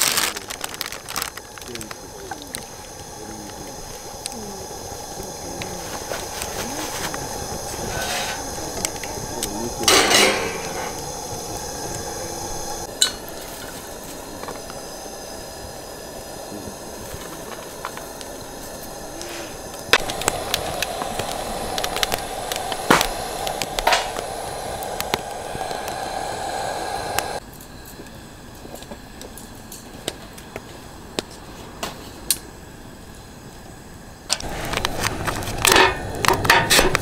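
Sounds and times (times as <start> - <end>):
wood fire hissing: 0.0 - 37.0
utensils clinking on metal plate: 9.9 - 10.9.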